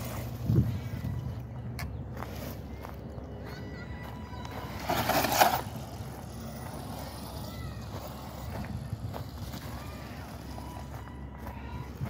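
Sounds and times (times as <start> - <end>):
electric toy truck motors driving: 0.0 - 12.0
tires scrabbling onto pavement: 4.3 - 11.0.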